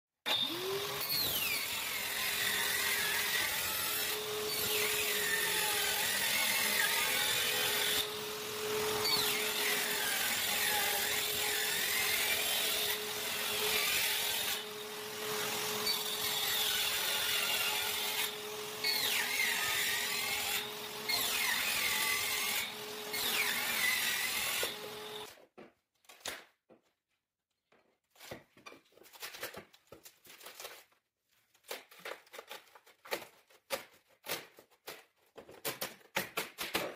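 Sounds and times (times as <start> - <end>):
circular saw whining: 0.3 - 25.3
shop vacuum humming: 14.5 - 25.3.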